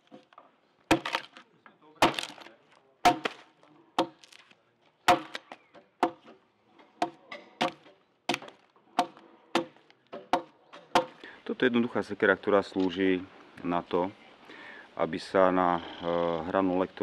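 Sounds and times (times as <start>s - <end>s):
axe chopping log: 0.0s - 1.4s, 2.0s - 11.2s.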